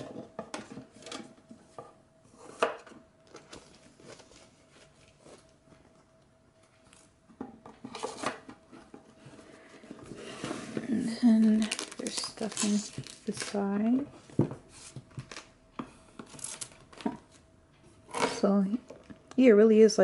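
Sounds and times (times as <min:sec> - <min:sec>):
paper rustling: 0:11.3 - 0:14.0.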